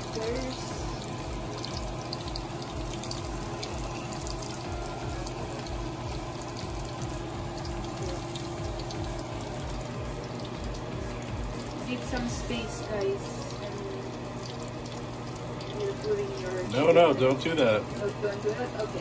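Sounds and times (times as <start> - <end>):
chicken sizzling in hot oil: 0.0 - 19.0.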